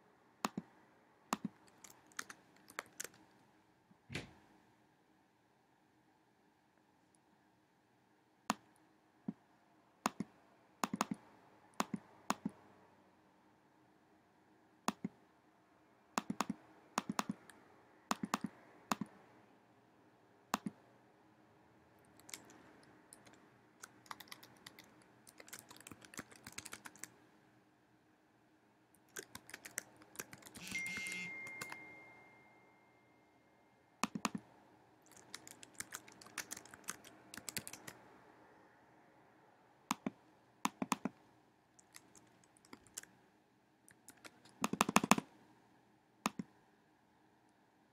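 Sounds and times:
keyboard and mouse clicks: 0:00.4 - 0:00.7, 0:01.3 - 0:03.3, 0:10.0 - 0:11.2, 0:11.8 - 0:12.6, 0:14.9 - 0:15.2, 0:16.2 - 0:19.2, 0:20.5 - 0:20.8, 0:22.1 - 0:27.2, 0:29.0 - 0:32.0, 0:34.0 - 0:38.0, 0:39.9 - 0:41.2, 0:41.8 - 0:43.2, 0:43.9 - 0:45.3, 0:46.3 - 0:46.5
typing on keyboard: 0:01.3 - 0:03.3, 0:10.1 - 0:11.2, 0:11.8 - 0:12.6, 0:16.2 - 0:19.1, 0:22.2 - 0:27.2, 0:29.1 - 0:32.1, 0:34.0 - 0:34.4, 0:35.0 - 0:38.0, 0:39.9 - 0:41.2, 0:41.8 - 0:43.1, 0:43.9 - 0:45.3
faint steady high tone: 0:30.4 - 0:34.0.

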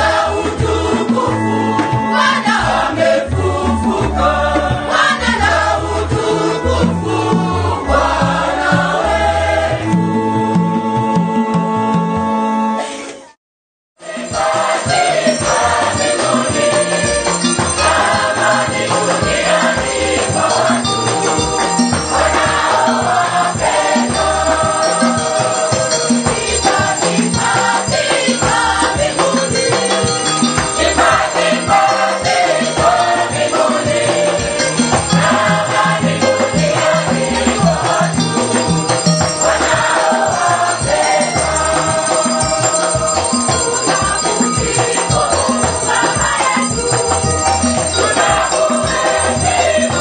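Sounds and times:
voices singing together: 0:00.0 - 0:11.0, 0:14.0 - 0:50.0
steady beat: 0:14.5 - 0:50.0.

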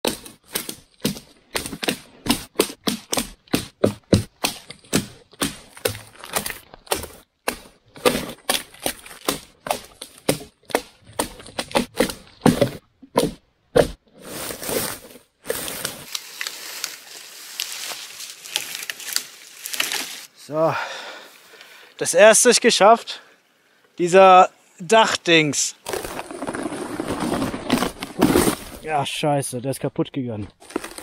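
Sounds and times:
dry wood cracking and snapping: 0:00.0 - 0:12.7, 0:15.7 - 0:20.3, 0:25.8 - 0:28.8, 0:30.6 - 0:31.0
branches rustling: 0:03.9 - 0:12.8, 0:14.1 - 0:20.4, 0:25.8 - 0:29.0, 0:30.6 - 0:31.0.

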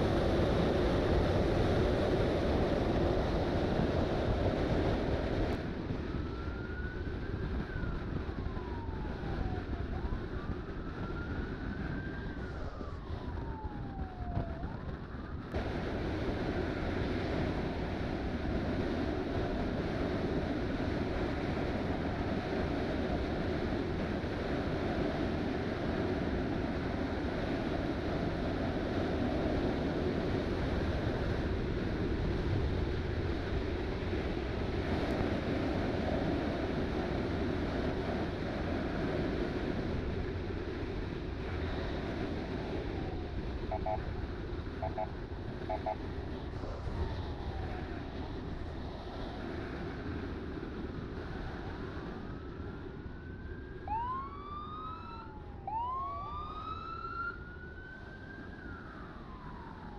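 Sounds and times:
motorcycle engine and road drone: 0:00.0 - 0:59.9
wind rushing over microphone: 0:00.0 - 0:59.9
siren wailing: 0:06.0 - 0:15.7, 0:42.5 - 0:48.6, 0:52.0 - 0:59.9.

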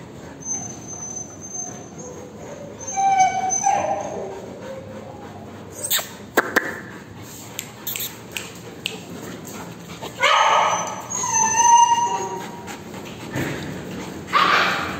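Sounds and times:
dog whining: 0:00.0 - 0:06.2, 0:10.0 - 0:13.0
dog yelping: 0:00.4 - 0:04.9, 0:10.1 - 0:12.7, 0:14.3 - 0:14.9.

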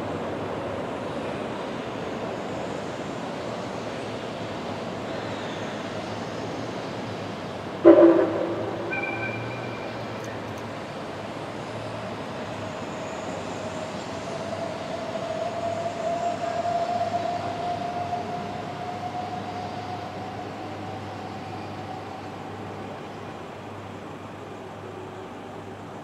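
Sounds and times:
train rumbling on tracks: 0:00.0 - 0:26.0
faint drawn-out tone: 0:07.8 - 0:10.6.

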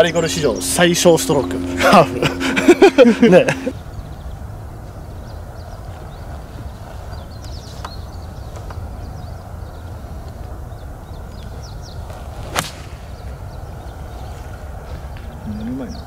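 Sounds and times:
wind rumble: 0:00.0 - 0:16.0
golf club striking ball: 0:12.4 - 0:13.2.

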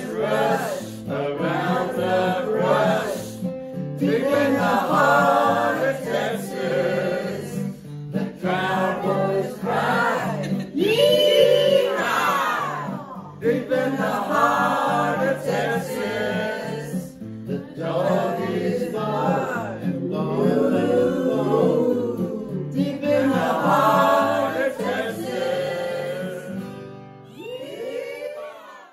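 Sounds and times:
group singing: 0:00.0 - 0:26.9.

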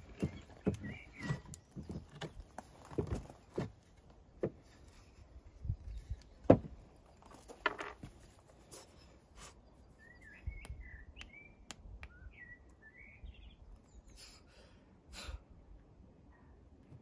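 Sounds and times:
bird chirping: 0:00.0 - 0:02.8, 0:08.8 - 0:14.5
faint outdoor background noise: 0:00.0 - 0:17.0.

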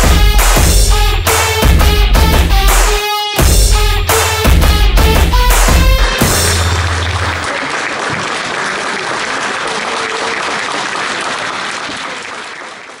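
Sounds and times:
rock music: 0:00.0 - 0:07.1
audience applauding: 0:06.2 - 0:13.0.

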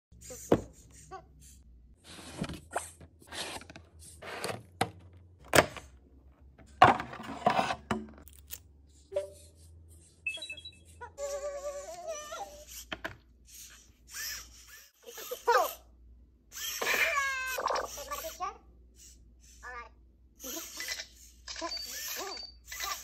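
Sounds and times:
robot electronic beeps: 0:10.2 - 0:10.9.

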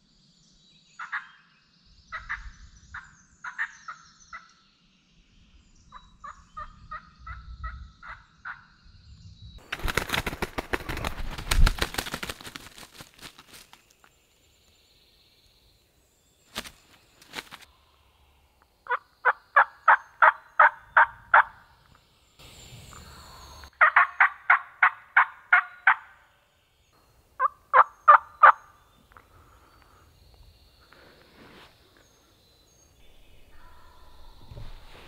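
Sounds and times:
turkey yelping: 0:23.8 - 0:26.0.

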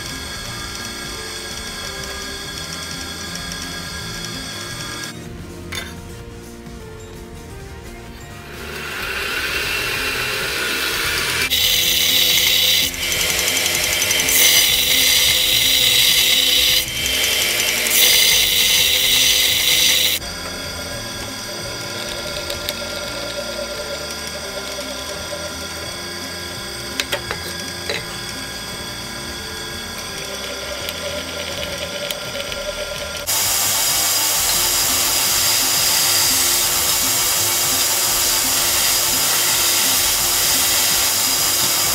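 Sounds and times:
belt grinder grinding steel: 0:00.0 - 0:05.2, 0:08.3 - 0:41.9
grinding hiss: 0:00.0 - 0:05.2, 0:08.3 - 0:41.9
motor spinning up: 0:00.0 - 0:05.2, 0:08.4 - 0:41.9
drill press whirring: 0:00.0 - 0:06.0, 0:08.2 - 0:41.9
drill press clicks: 0:08.7 - 0:20.5, 0:21.1 - 0:41.9.

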